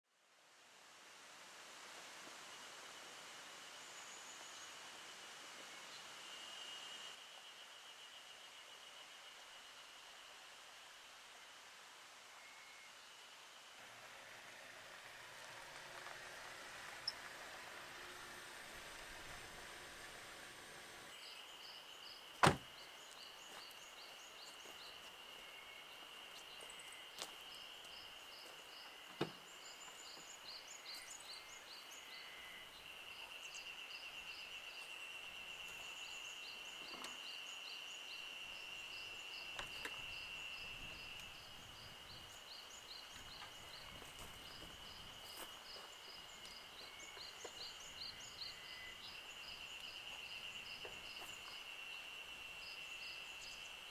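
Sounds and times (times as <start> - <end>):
high insect drone with chirping: 1.7 - 53.9
car doors shutting: 22.4 - 22.7.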